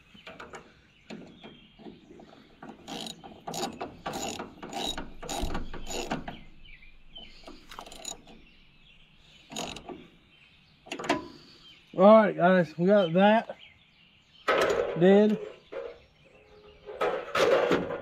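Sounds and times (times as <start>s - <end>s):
ratchet wrench clicking: 2.8s - 6.2s, 7.4s - 8.3s, 9.5s - 9.9s.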